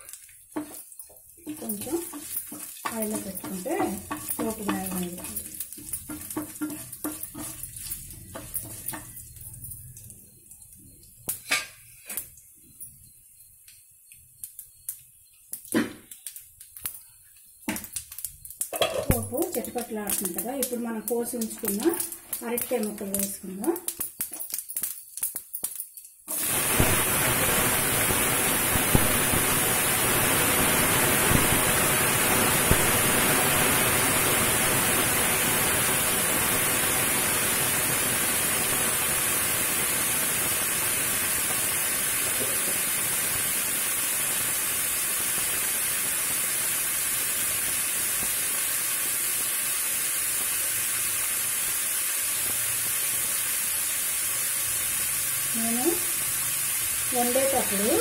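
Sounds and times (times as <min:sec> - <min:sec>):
oil popping: 0:00.0 - 0:10.1
food sizzling in hot oil: 0:00.0 - 0:58.0.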